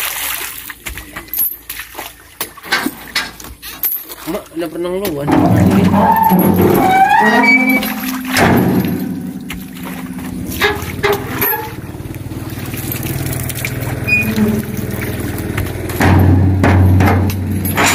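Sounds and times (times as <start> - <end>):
fruit bunches thudding in truck bed: 7.9 - 12.0, 13.8 - 17.9
diesel engine idling: 8.8 - 16.7.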